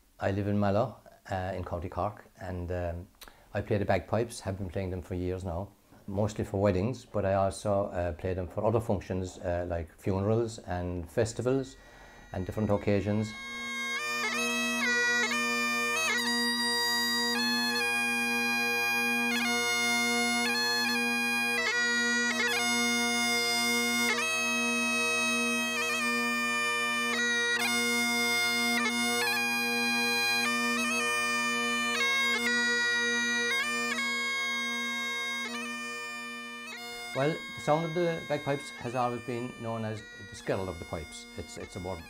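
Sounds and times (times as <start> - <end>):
bagpipe chanter melody: 11.2 - 42.0
bagpipe drones: 11.4 - 42.0.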